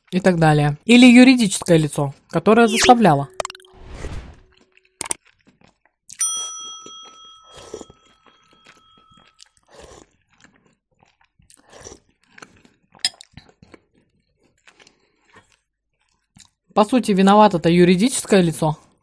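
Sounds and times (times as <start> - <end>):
bright bell ding: 6.2 - 9.0.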